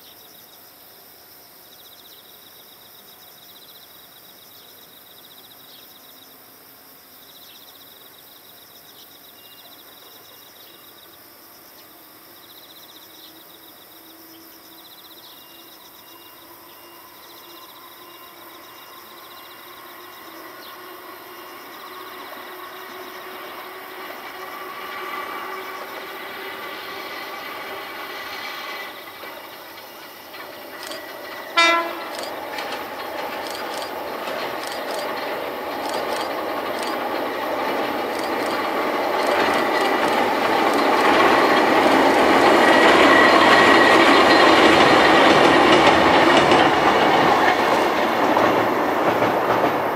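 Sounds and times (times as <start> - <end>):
electric train running: 15.3 - 49.9
train horn blast: 31.5 - 32.2.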